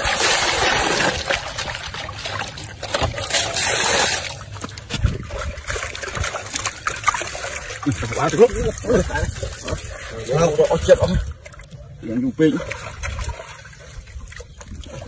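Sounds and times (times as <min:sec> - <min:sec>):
water pouring into metal basin: 0:00.0 - 0:04.6.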